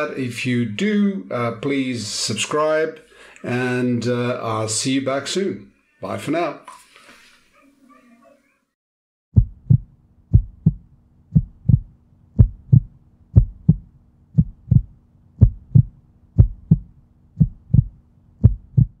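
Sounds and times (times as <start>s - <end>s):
heartbeat thumps: 9.4s - 19.0s.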